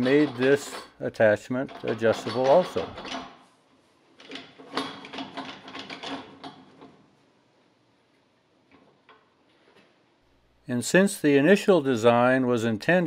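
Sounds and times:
metal clicks and clanks: 0.0 - 3.4, 4.2 - 7.0.

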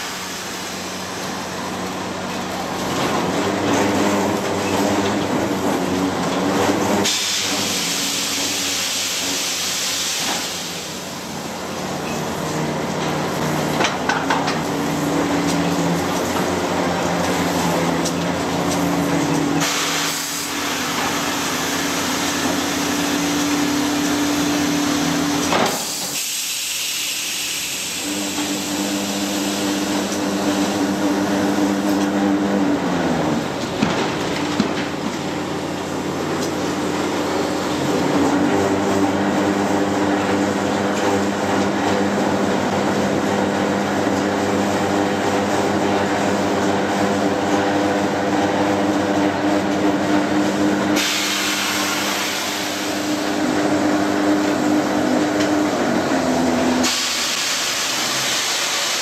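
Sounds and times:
loud hissing: 51.0 - 53.4.

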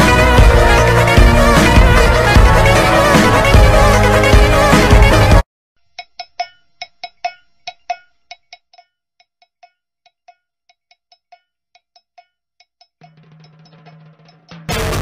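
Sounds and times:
bell-like percussion taps: 6.0 - 14.7.

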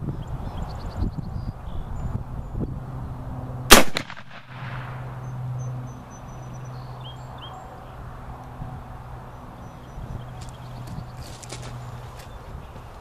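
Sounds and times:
rifle shot: 3.7 - 5.0.

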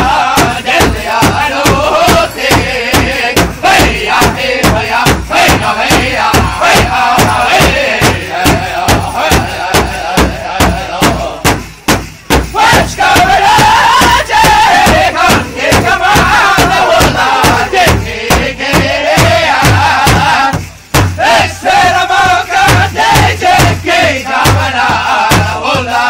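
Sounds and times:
large drum steady beat: 0.0 - 26.0
singers chanting high-pitched: 0.0 - 26.0.

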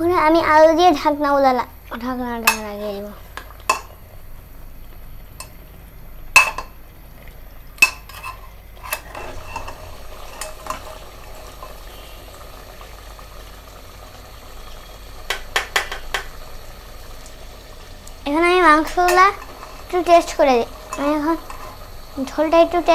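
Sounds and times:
meat frying hiss: 0.0 - 22.9
metal spoon clinking on pot: 6.4 - 6.7, 7.8 - 10.8.

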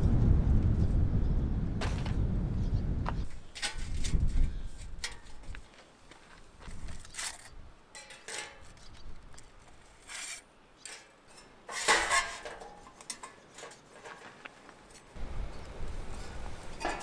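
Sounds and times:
pots and dishes clattering: 11.7 - 14.2, 16.8 - 17.0.

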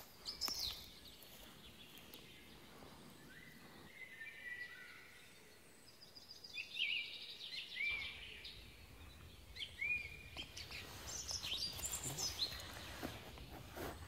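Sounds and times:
songbirds chirping: 0.0 - 14.0
rustling in dry leaves: 9.8 - 14.0.

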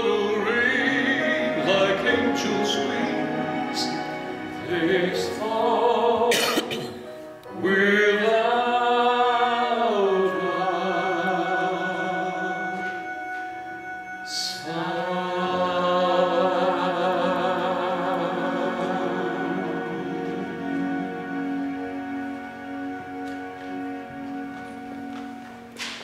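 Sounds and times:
man and woman singing duet: 0.0 - 13.2, 14.2 - 21.6
instrumental accompaniment: 0.0 - 26.0.

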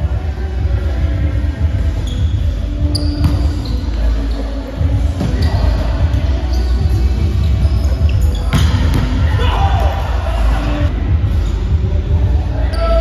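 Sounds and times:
low rumble in gym hall: 0.0 - 13.0
sneakers squeaking on court: 1.9 - 9.4.

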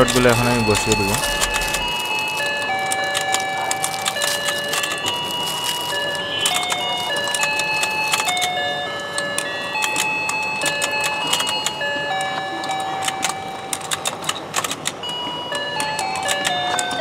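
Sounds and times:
electronic beeping tune: 0.0 - 1.9
plastic clicking and rattling: 0.0 - 15.1, 15.8 - 17.0.

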